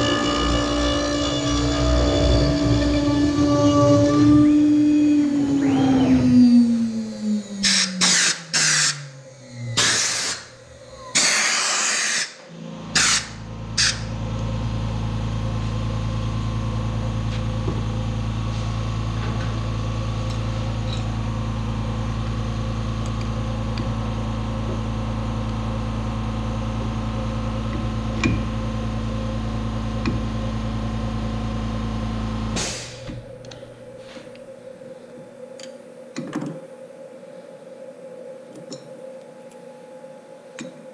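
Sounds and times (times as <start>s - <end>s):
steady motor hum: 0.0s - 40.9s
air blasts blowing wood chips: 32.6s - 33.1s.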